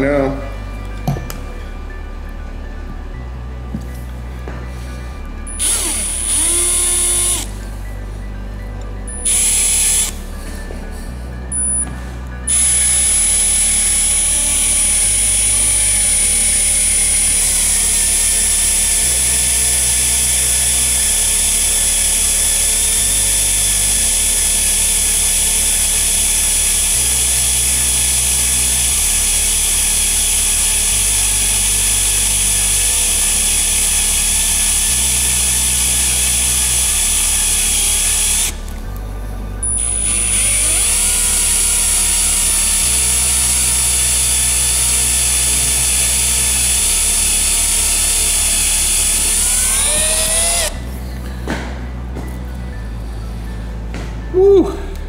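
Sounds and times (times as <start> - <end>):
background music with bass: 0.0 - 55.0
cordless drill whining through steel: 5.4 - 7.8, 9.1 - 10.5, 11.5 - 38.9, 39.6 - 50.9.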